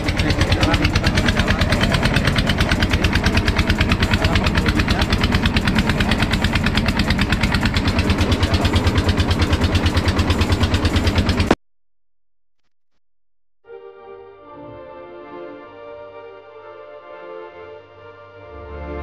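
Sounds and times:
boat engine running: 0.0s - 11.6s.

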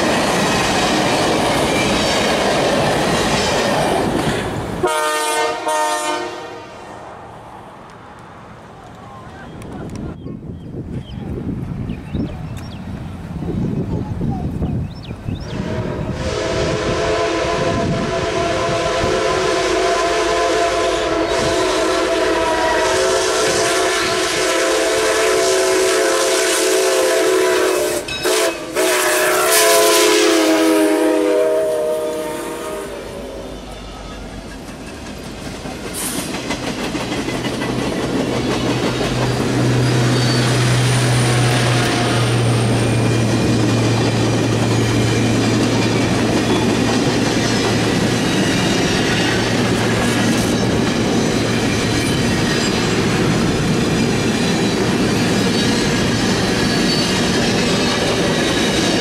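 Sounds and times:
train wheels clattering: 0.0s - 4.7s, 33.6s - 59.0s
steam train whistle chord: 4.8s - 6.8s, 15.6s - 33.7s.

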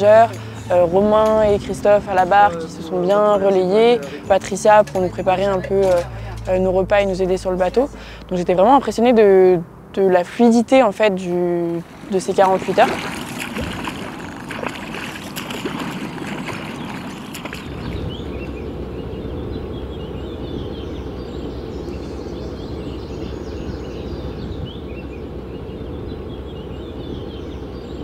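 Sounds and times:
birds chirping: 0.0s - 28.0s
motorboat engine droning: 0.0s - 28.0s
water splashing from swimming: 11.8s - 18.6s.

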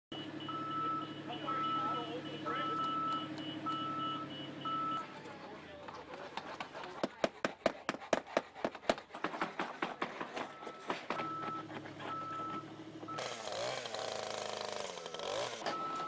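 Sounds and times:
paint scrapers scraping wood: 5.7s - 16.0s
hedge trimmer engine running: 13.1s - 16.0s.

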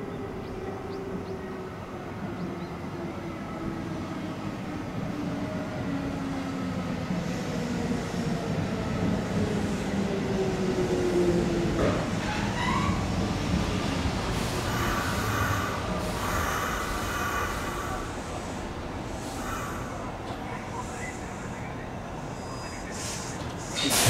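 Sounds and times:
electric train rumble: 0.0s - 24.0s
train motors humming tones: 14.4s - 24.0s.

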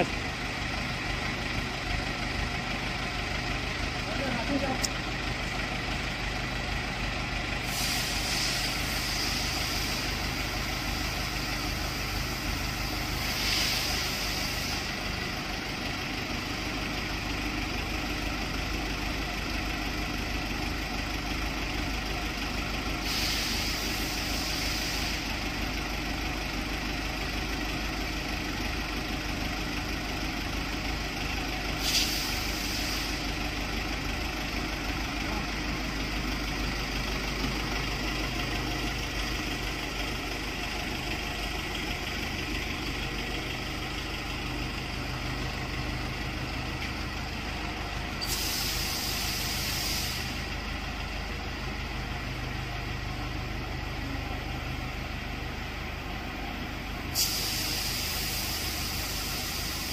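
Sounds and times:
truck engine idling: 0.0s - 59.9s
hydraulic hiss: 7.6s - 10.2s, 10.8s - 14.9s, 23.0s - 25.4s, 31.8s - 33.4s, 48.2s - 50.5s, 57.1s - 59.9s.

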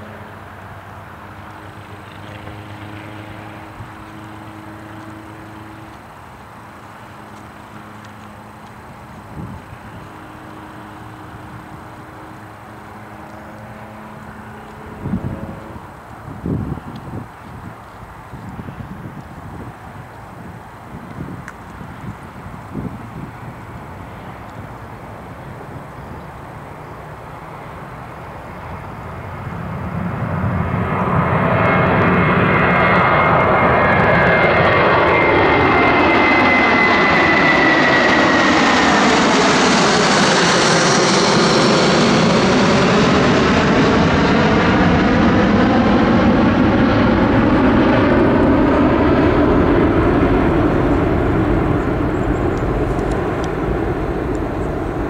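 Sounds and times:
jet passing overhead: 0.0s - 55.0s
high falling jet whine: 28.5s - 55.0s.

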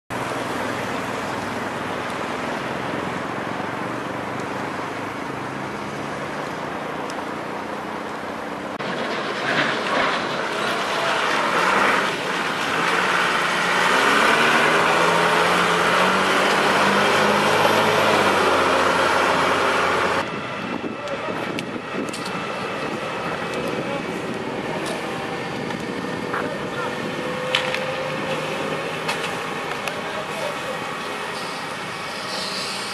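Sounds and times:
fire engine driving past: 0.1s - 32.9s
traffic noise: 0.1s - 32.9s.

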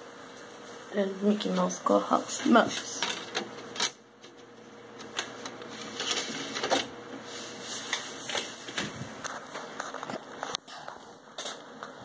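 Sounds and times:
disc spinning whir: 0.0s - 10.6s
disc drive clicks: 3.0s - 7.0s.

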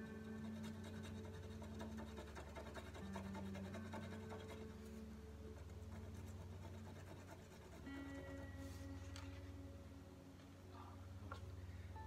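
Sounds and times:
low steady tones: 0.0s - 12.0s
scratch card being scratched: 0.5s - 4.7s, 5.9s - 7.8s.

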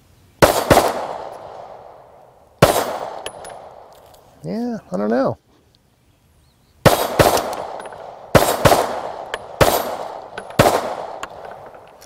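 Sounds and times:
pistol shots: 0.4s - 2.0s, 2.6s - 3.9s, 6.8s - 11.6s.

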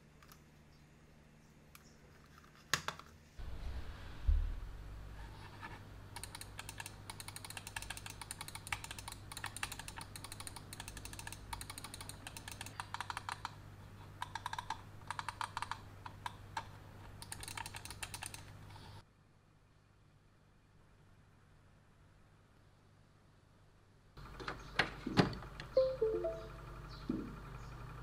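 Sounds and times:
mouse buttons clicking rapidly: 6.1s - 13.6s, 14.2s - 18.6s.

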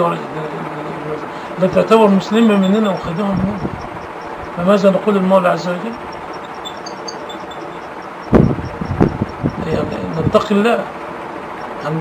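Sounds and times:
steady rumble and hiss: 0.0s - 12.0s
faint short high chirps: 6.1s - 9.4s.

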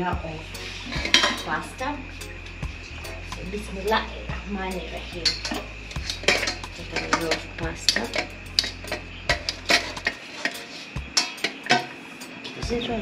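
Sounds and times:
metal spoon scraping a pot: 0.6s - 2.4s, 5.0s - 12.4s
kitchenware knocking together: 1.0s - 1.5s.

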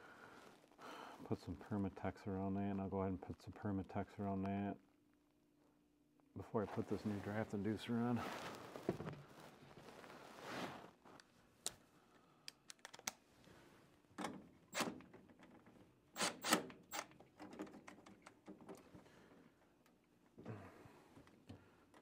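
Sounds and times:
small clicks and knocks: 16.6s - 19.0s.

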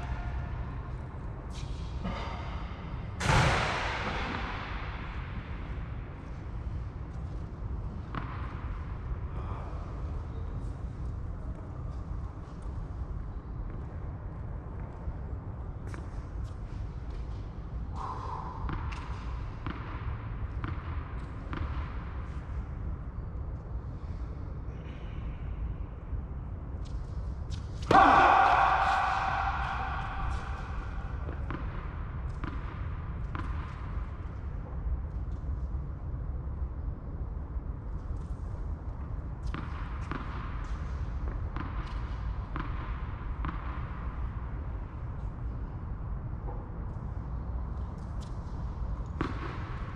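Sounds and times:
steady low rumble: 0.0s - 49.9s
tennis ball hits and bounces: 8.0s - 8.8s, 18.6s - 22.1s, 27.8s - 34.1s, 39.4s - 44.3s, 49.1s - 49.9s.

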